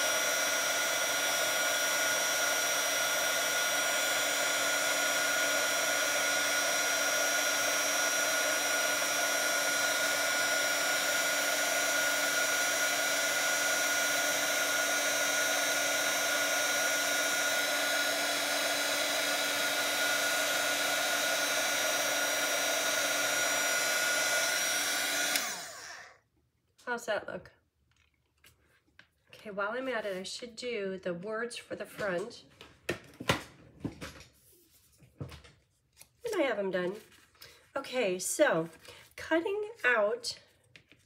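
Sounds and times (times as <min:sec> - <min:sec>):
heat tool fan whining: 0:00.0 - 0:26.2.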